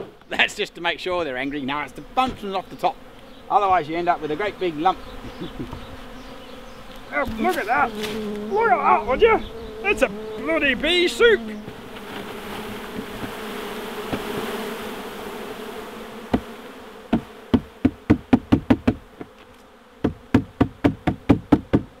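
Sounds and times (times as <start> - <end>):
bee swarm buzzing: 0.0 - 22.0
knocks on plastic tub: 17.1 - 19.3.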